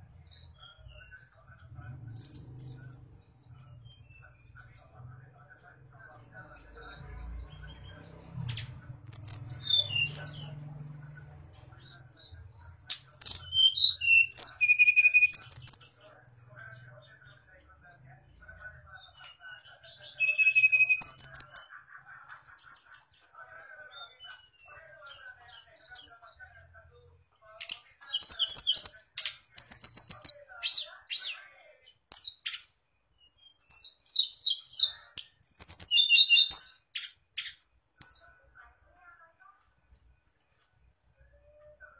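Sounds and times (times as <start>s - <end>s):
small bird singing: 0.0s - 38.5s
songbird whistling and trilling: 9.1s - 10.4s, 13.1s - 15.9s, 19.9s - 21.7s, 28.0s - 31.4s, 32.1s - 38.2s.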